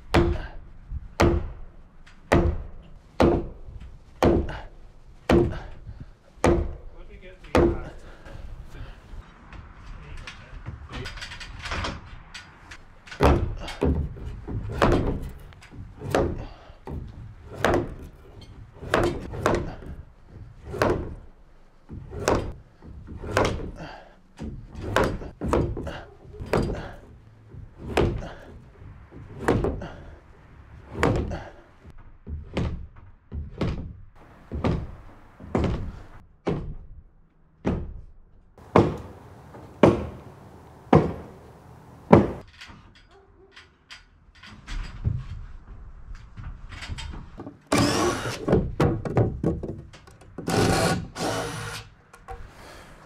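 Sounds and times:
sledgehammer blows on wooden beam: 0.0 - 8.9, 13.2 - 30.2, 30.8 - 36.9, 37.6 - 42.5.

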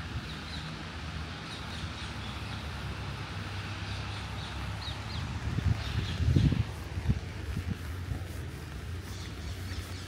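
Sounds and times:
low engine rumble: 0.0 - 10.0
faint bird chirp: 9.0 - 10.0.

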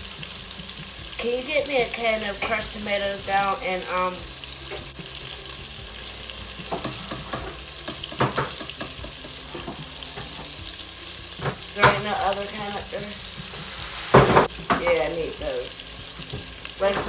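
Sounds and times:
sausage sizzling in oil: 0.0 - 17.0.

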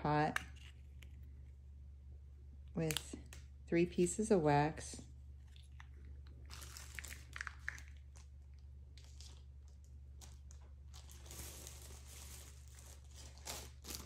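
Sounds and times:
plastic bag crinkling: 5.4 - 14.0.

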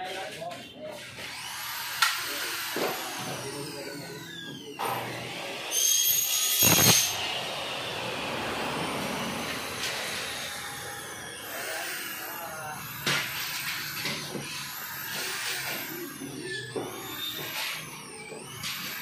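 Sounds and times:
glass scraping squeal: 5.8 - 7.2, 15.2 - 18.7.

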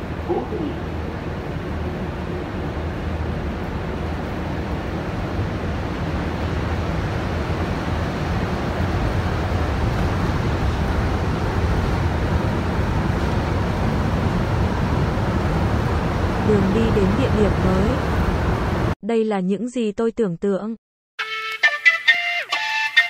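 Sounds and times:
metro train rumble and hiss: 0.0 - 19.0.

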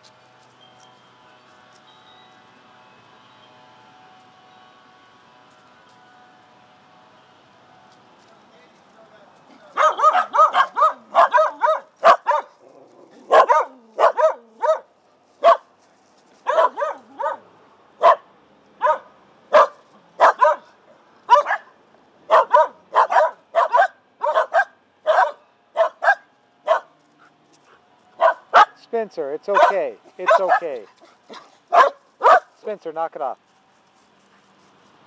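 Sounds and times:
dogs barking: 9.7 - 15.7, 16.4 - 20.7, 21.3 - 28.8, 29.5 - 32.6.

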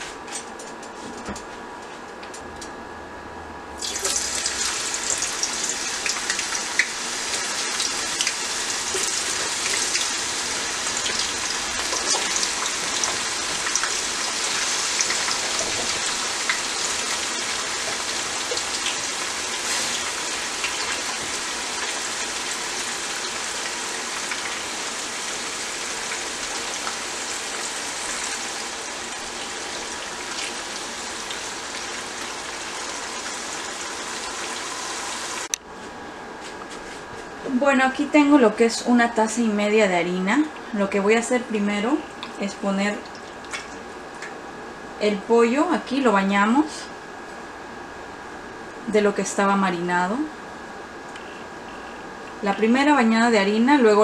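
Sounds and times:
potatoes sizzling in hot oil: 3.8 - 35.5.

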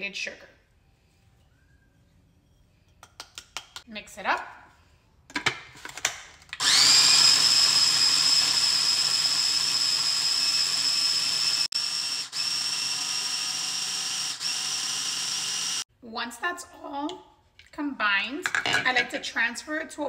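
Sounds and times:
food processor motor whine: 6.6 - 15.8.

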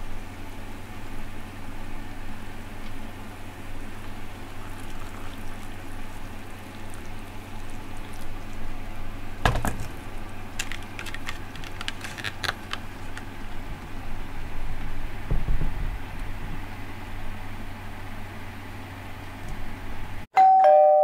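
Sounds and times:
hot water pouring into cup: 4.0 - 8.9
paper lid crinkling clicks: 10.6 - 13.3.

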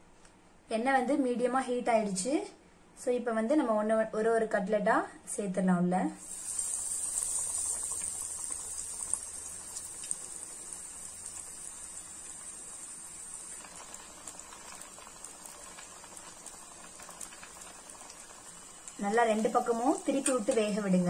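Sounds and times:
cutlet deep-frying in oil: 6.2 - 21.0.

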